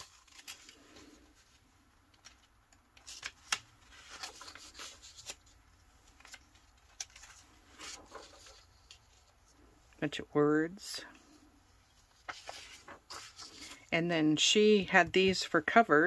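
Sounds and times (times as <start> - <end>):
paper rustling: 0.0 - 9.7, 11.2 - 13.9.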